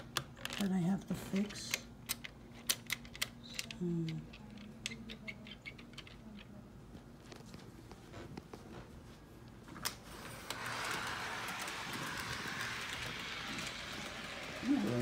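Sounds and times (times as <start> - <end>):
model train running on track: 10.5 - 15.0.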